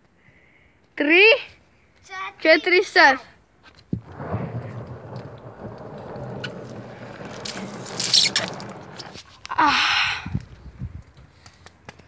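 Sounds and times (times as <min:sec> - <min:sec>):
skateboard wheels rolling on stone: 0:03.7 - 0:09.6
water spray hiss: 0:07.2 - 0:09.1.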